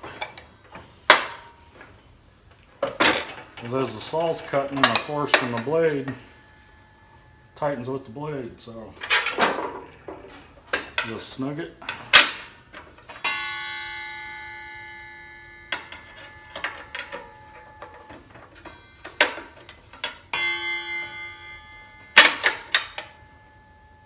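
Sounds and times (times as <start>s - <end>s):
saw blade ringing like a bell: 13.1s - 24.0s.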